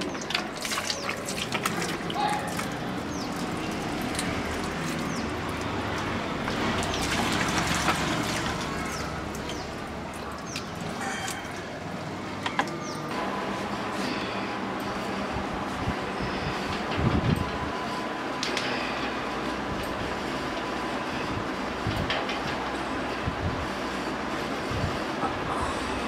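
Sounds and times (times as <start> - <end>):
water splashing in plastic bucket: 0.0 - 11.4.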